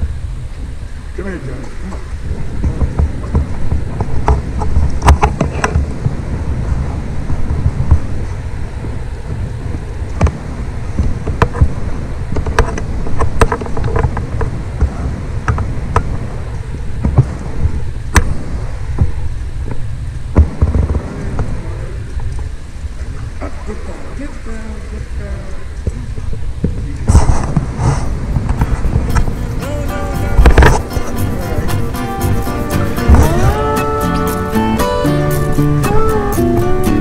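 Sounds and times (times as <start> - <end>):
wind buffeting microphone: 0.0 - 37.0
sharp clicks and knocks: 2.6 - 5.9.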